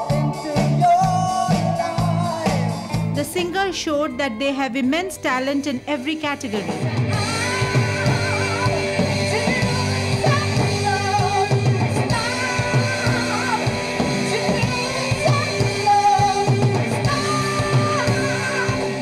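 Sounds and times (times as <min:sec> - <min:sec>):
man singing: 0:00.0 - 0:03.2
live rock band playing: 0:00.0 - 0:04.0, 0:06.2 - 0:19.0.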